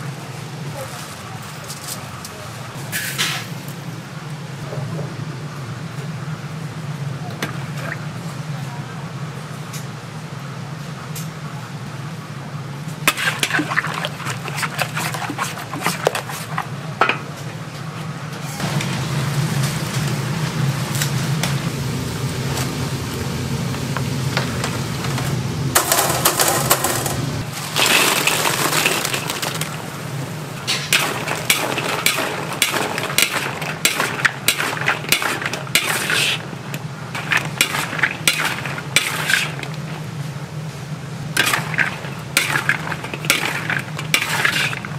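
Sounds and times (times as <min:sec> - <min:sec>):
steady low hum: 0:03.6 - 0:27.8, 0:29.0 - 0:44.9
metal utensils scraping a pot: 0:13.1 - 0:16.8, 0:30.7 - 0:36.5, 0:37.2 - 0:39.8, 0:41.4 - 0:44.9
hiss: 0:35.1 - 0:36.5.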